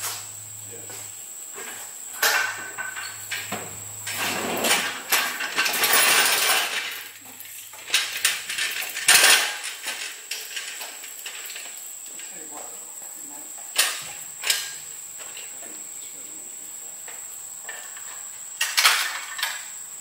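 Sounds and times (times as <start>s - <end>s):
hand truck set down with clank: 1.6s - 7.0s
hand truck rattling over concrete: 1.6s - 12.8s, 17.6s - 19.6s.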